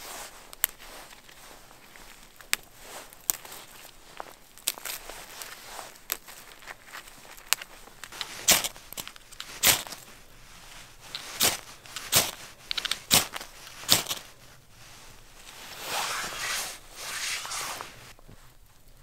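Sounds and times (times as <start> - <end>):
rustling swish: 8.1 - 18.2.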